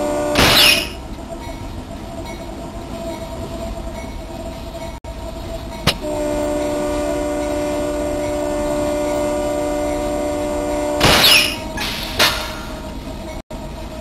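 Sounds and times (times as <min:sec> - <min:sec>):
locomotive air horn: 0:00.0 - 0:01.0, 0:06.0 - 0:11.8
freight train rumbling on rails: 0:00.0 - 0:14.0.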